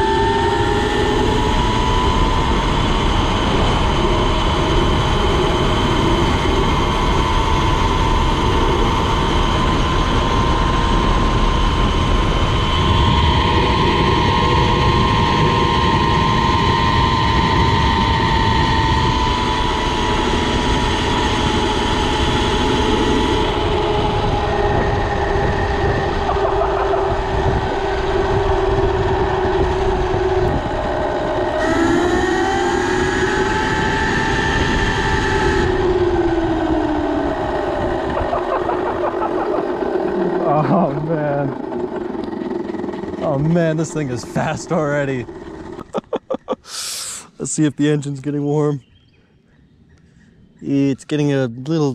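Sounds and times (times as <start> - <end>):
wind and tyre rush: 0.0 - 45.8
electric motor whine: 0.0 - 46.6.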